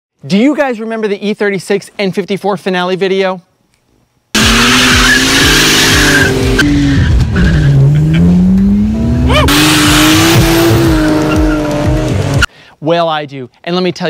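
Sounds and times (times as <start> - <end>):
car engine under full throttle: 4.4 - 12.5.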